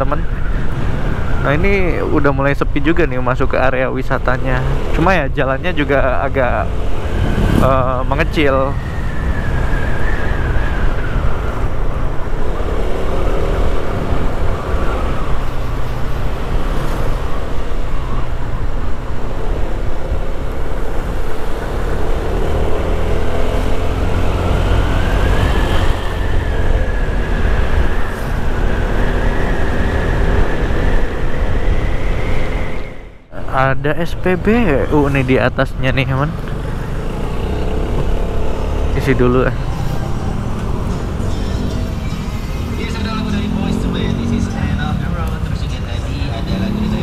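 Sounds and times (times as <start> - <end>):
wind rumble on microphone: 24.1 - 33.2.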